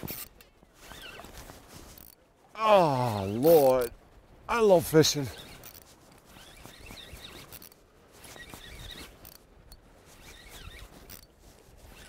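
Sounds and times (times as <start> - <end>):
fishing reel clicking whir: 1.9 - 2.2, 5.3 - 12.0.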